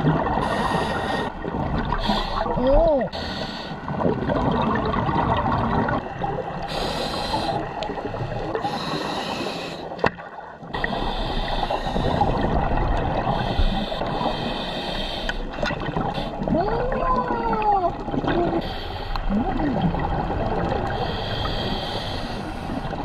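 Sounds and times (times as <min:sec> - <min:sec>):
exhaled bubbles gurgling: 0:00.0 - 0:23.0
regulator inhalation hiss: 0:03.2 - 0:03.8, 0:06.7 - 0:07.8, 0:08.6 - 0:09.9, 0:10.8 - 0:12.3, 0:13.4 - 0:15.5, 0:21.0 - 0:22.8.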